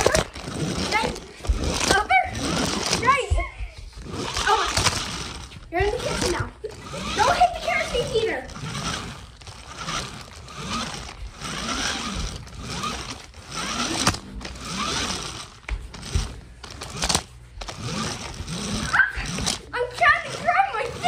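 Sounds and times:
low rising and falling hums: 0:00.0 - 0:19.8
phone rubbing and rustling: 0:04.0 - 0:19.7.

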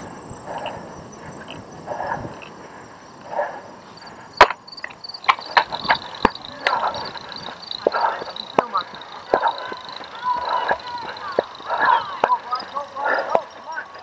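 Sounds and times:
bike clacks and rattles: 0:04.4 - 0:14.0.

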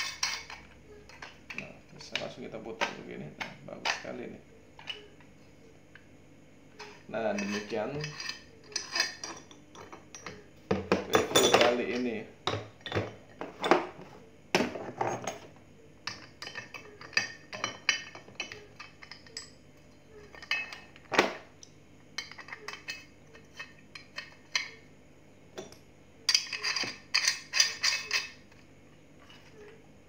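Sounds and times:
metal and plastic parts clinking: 0:00.0 - 0:04.2, 0:06.8 - 0:14.0, 0:14.6 - 0:21.2, 0:22.2 - 0:24.8, 0:25.6 - 0:29.8
parts set down on wooden table: 0:10.7 - 0:11.7.

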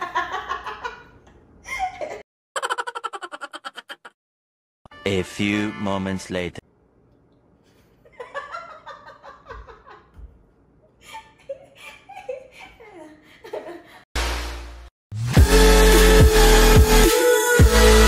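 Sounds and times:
man and woman laughing: 0:00.0 - 0:04.2, 0:08.0 - 0:10.2, 0:10.9 - 0:14.0
electronic dance music heavy bass: 0:14.2 - 0:18.0.

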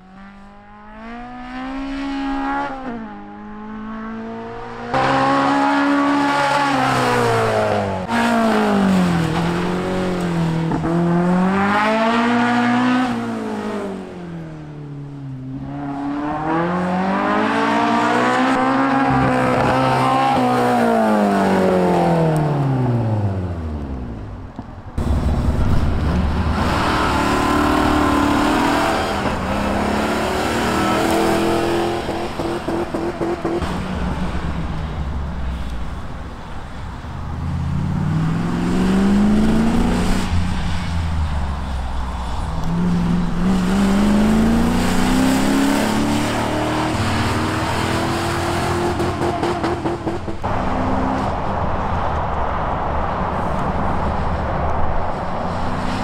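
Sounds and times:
car engine revving hard: 0:26.0 - 0:33.7.

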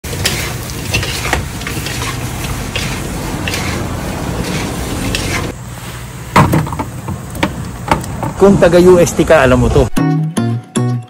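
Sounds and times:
utensils scraping a wok: 0:00.0 - 0:05.9.

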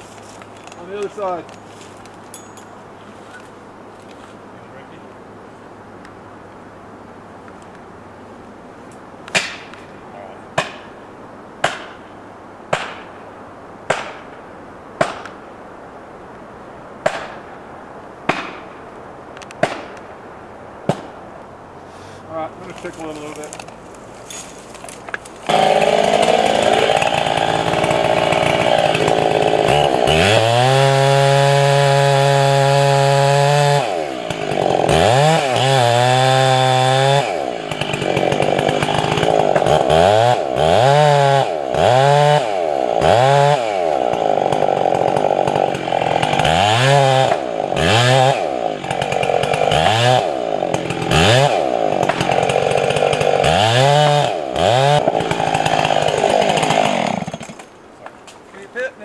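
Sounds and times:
chainsaw cutting wood: 0:22.7 - 0:58.4.

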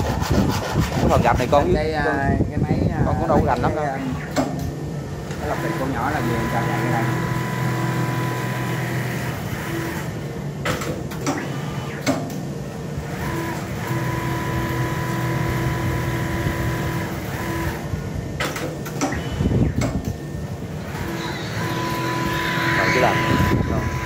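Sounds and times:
machine motor hum: 0:03.3 - 0:24.0
sharp clicks and knocks: 0:04.3 - 0:05.4, 0:10.6 - 0:12.5, 0:18.4 - 0:20.2.

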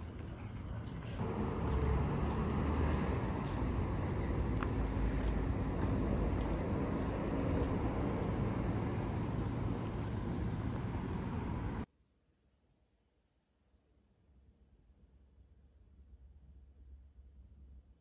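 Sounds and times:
low rumble of vehicle noise: 0:00.0 - 0:11.9.

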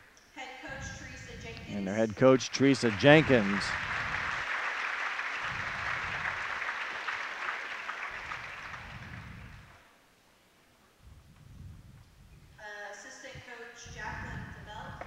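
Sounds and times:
crowd applauding: 0:01.7 - 0:09.8.

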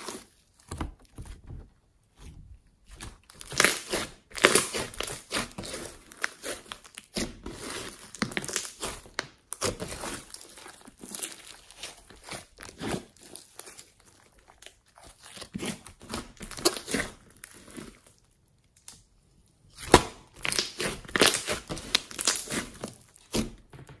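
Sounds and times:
slime squelching: 0:00.0 - 0:18.2, 0:19.7 - 0:23.6
slime popping: 0:02.8 - 0:13.0, 0:19.8 - 0:23.5.

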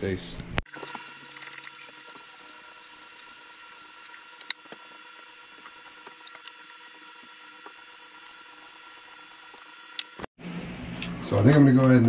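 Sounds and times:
tap water running into cup: 0:00.7 - 0:10.2.

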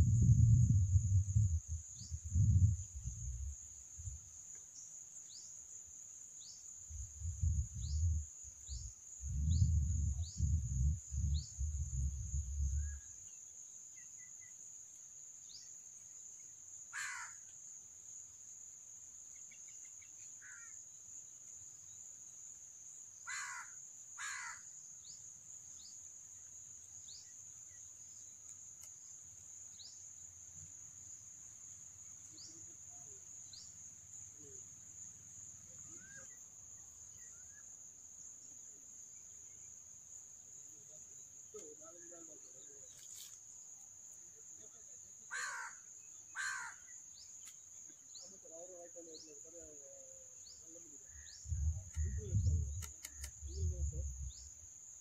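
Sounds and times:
low rumbling bumps: 0:00.0 - 0:03.6, 0:51.4 - 0:54.5
crow cawing: 0:16.9 - 0:17.4, 0:20.4 - 0:20.7, 0:23.3 - 0:24.6, 0:45.3 - 0:46.9
high-pitched insect drone: 0:50.7 - 0:54.8.

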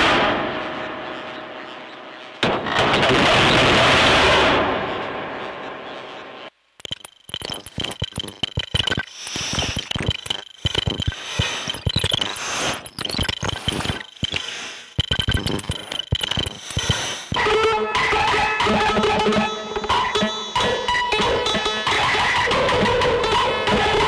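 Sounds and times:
synth clicks and crackles: 0:06.4 - 0:24.0.

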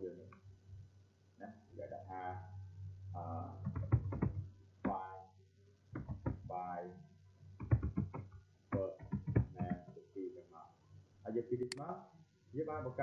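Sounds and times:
man speaking softly: 0:00.0 - 0:00.3, 0:01.4 - 0:03.7, 0:04.9 - 0:05.3, 0:06.5 - 0:07.1, 0:08.8 - 0:13.0
keyboard typing clicks: 0:03.6 - 0:05.0, 0:07.6 - 0:09.8.

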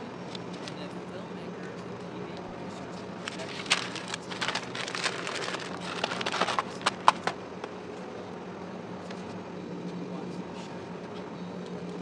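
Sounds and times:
paper crinkling and rustling: 0:03.2 - 0:07.3.

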